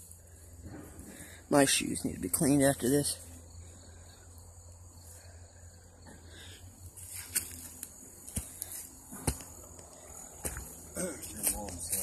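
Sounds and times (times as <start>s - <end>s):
high insect buzz: 0.0s - 11.8s
footsteps on dry leaves and twigs: 6.9s - 12.0s.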